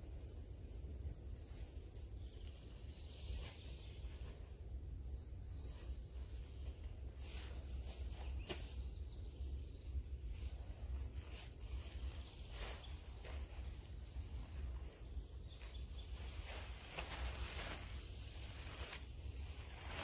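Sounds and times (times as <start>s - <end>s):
faint bird chirps: 0.0s - 20.0s
short rustles: 10.3s - 20.0s.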